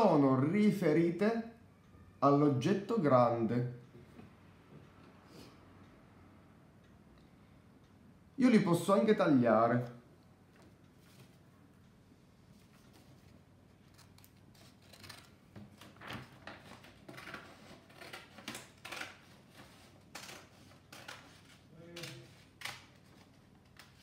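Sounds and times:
scissors cutting paper: 13.8 - 15.8, 16.6 - 24.0.

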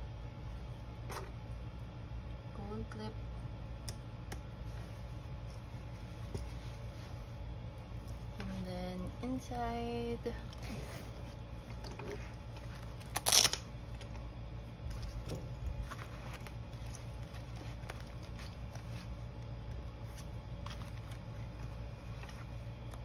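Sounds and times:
fabric rustling: 4.6 - 8.6, 14.8 - 22.9.

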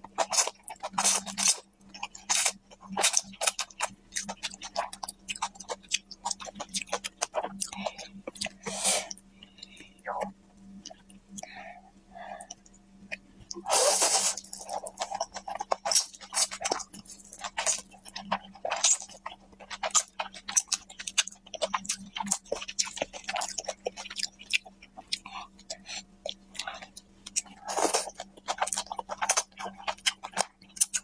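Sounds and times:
wet chewing: 0.0 - 8.8, 12.4 - 31.0
loud noodle slurps: 13.7 - 14.4.

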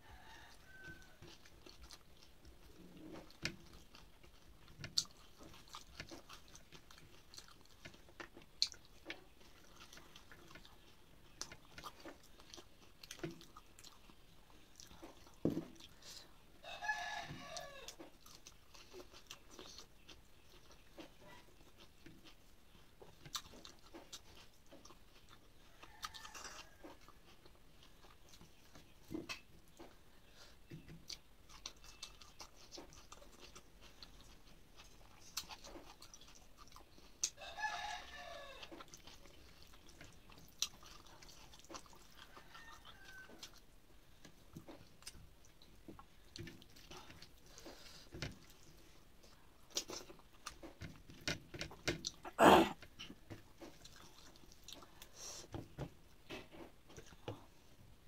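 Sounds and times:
rooster crowing: 0.0 - 1.2, 16.6 - 18.0, 25.8 - 27.0, 37.4 - 38.6, 42.4 - 43.4
soft chewing: 0.0 - 58.0.

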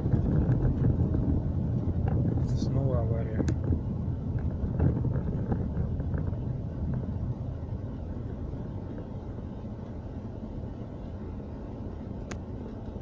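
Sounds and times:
car engine rumble: 0.0 - 13.0
tyres on a wet road: 0.0 - 13.0.

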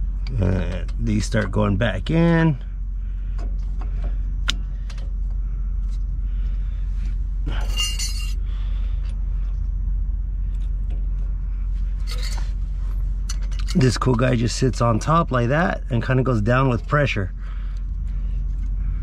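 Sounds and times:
low hum: 0.0 - 19.0
brake pads clinking and scraping: 7.0 - 9.2, 10.5 - 18.8.

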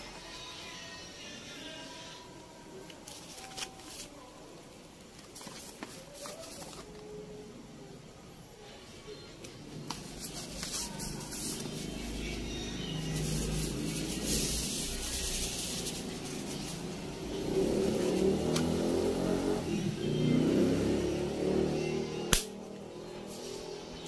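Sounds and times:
foam wrapping crinkling: 3.0 - 4.4, 5.2 - 7.1, 9.9 - 17.0.

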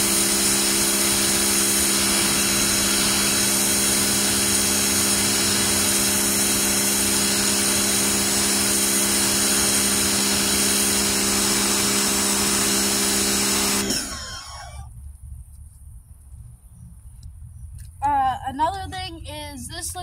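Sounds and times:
water jet hissing on concrete: 0.0 - 14.8
pressure washer humming: 0.0 - 14.9.

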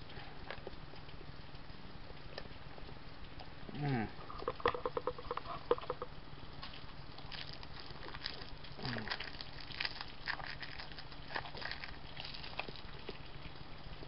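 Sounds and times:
low hum through closed lips: 2.0 - 14.0.

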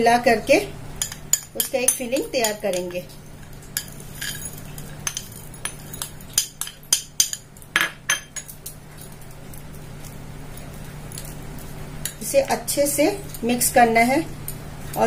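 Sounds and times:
metal spoon clinking on glass bowls: 1.0 - 8.6.

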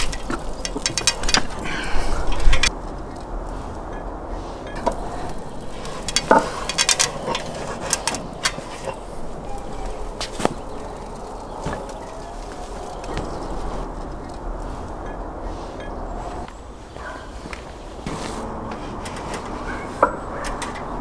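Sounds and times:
handling noise: 0.0 - 21.0
metal skewer clinking on brick: 4.7 - 10.9.

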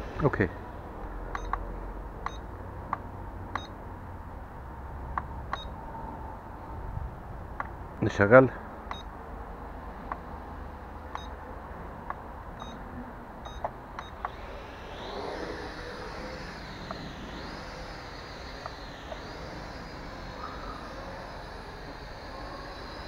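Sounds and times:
drone short beeps: 12.6 - 12.8, 13.4 - 23.0
drone motors whining: 13.4 - 23.0.

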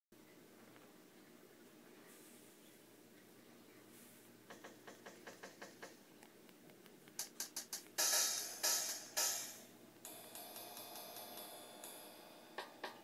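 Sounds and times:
drum machine hits: 4.5 - 6.0, 7.2 - 13.0.

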